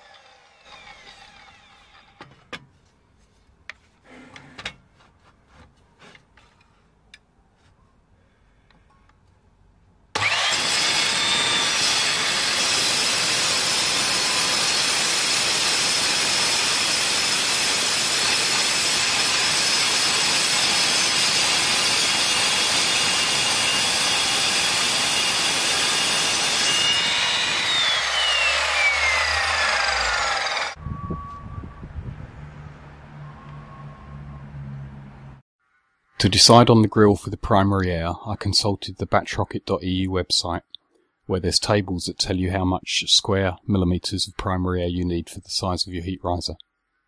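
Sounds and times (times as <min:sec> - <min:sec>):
mitre saw whine: 0:00.0 - 0:02.3, 0:10.2 - 0:35.4
saw cutting through steel: 0:00.0 - 0:02.3, 0:10.2 - 0:30.8.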